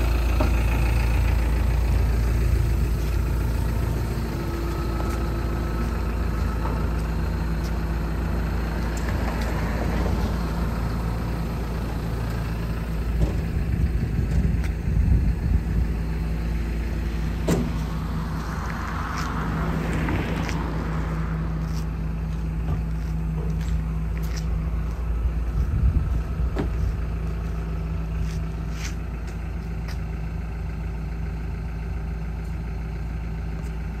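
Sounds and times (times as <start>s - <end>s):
diesel excavator engine idling: 0.0s - 34.0s.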